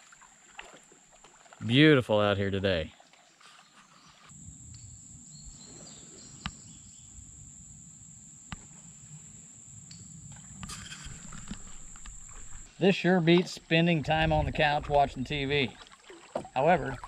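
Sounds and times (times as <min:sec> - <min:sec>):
insects buzzing: 0:04.3 - 0:14.0.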